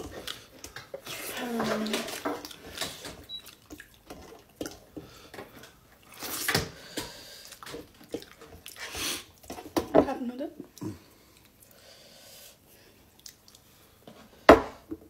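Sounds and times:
small clicks and mouth sounds: 0:10.6 - 0:11.8, 0:13.1 - 0:13.7.

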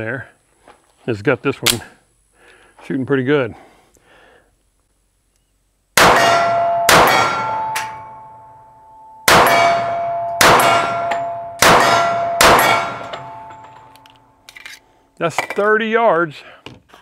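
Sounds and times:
bullets ringing steel target: 0:06.0 - 0:14.4.

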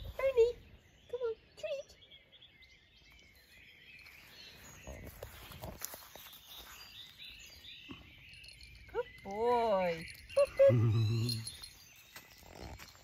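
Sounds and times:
small birds chirping: 0:00.0 - 0:13.0
footsteps rustling through grass: 0:04.0 - 0:07.6.

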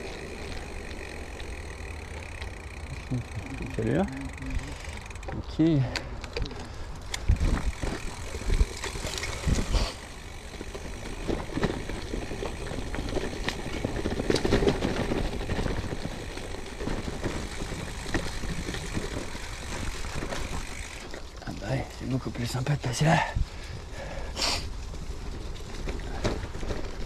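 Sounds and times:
bike tyre noise on track: 0:00.0 - 0:27.0
low wind rumble: 0:00.0 - 0:27.0
bike knocking over bumps: 0:10.3 - 0:21.2.

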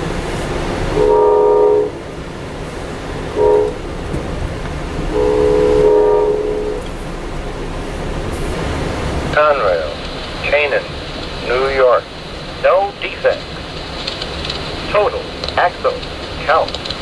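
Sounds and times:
train cars running on rails: 0:00.0 - 0:17.0
train air horn blasts: 0:00.9 - 0:02.0, 0:03.3 - 0:04.0, 0:05.1 - 0:06.8.

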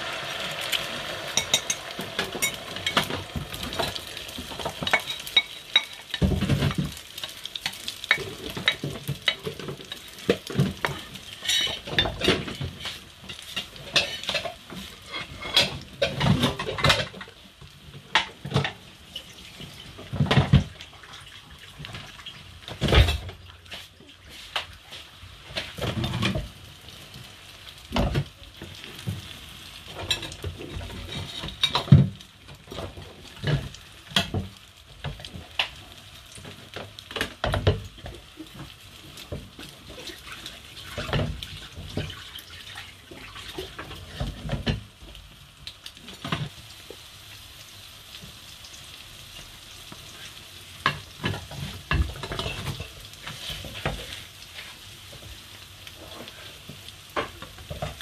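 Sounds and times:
steady hiss: 0:00.0 - 0:09.5
water running at a sink: 0:00.0 - 0:12.8, 0:18.2 - 0:26.5, 0:37.2 - 0:45.0
spatula stirring in frying pan: 0:00.0 - 0:45.1, 0:45.9 - 0:58.0
dishes and pans clinking: 0:01.2 - 0:17.4, 0:18.1 - 0:20.7, 0:22.7 - 0:23.4, 0:25.5 - 0:26.5, 0:29.9 - 0:35.7, 0:50.8 - 0:54.2.

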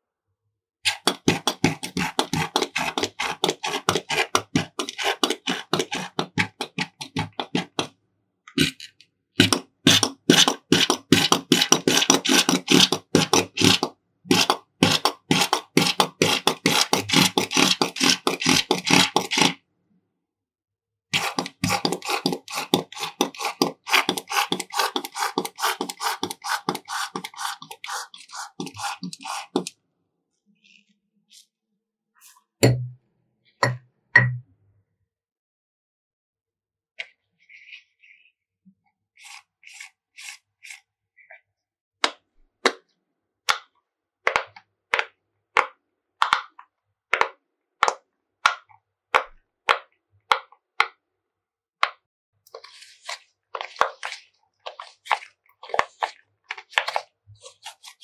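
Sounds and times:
slime squelching: 0:00.9 - 0:07.9, 0:08.6 - 0:19.6, 0:21.1 - 0:29.7, 0:52.5 - 0:58.0.

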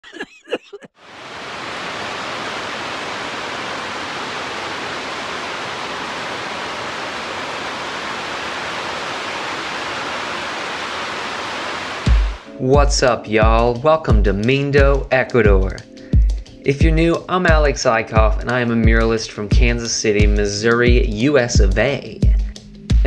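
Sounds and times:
heavy rain on a roof: 0:01.0 - 0:12.5.

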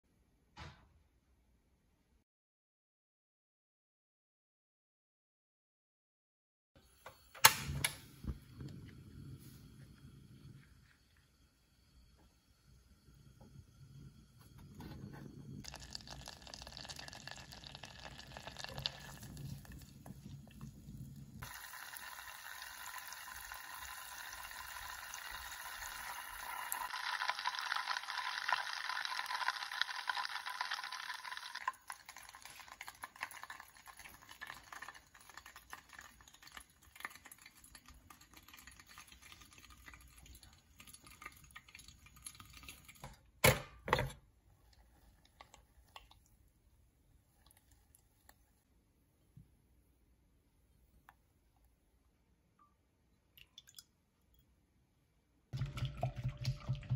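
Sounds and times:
butter sizzling in a saucepan: 0:15.4 - 0:39.3.

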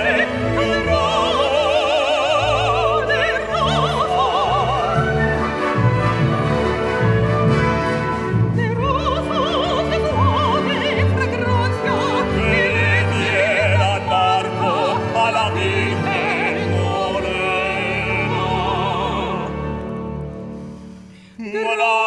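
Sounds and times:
operatic duet singing: 0:00.0 - 0:05.8, 0:08.2 - 0:20.2, 0:21.4 - 0:22.0
symphony orchestra: 0:00.0 - 0:22.0.

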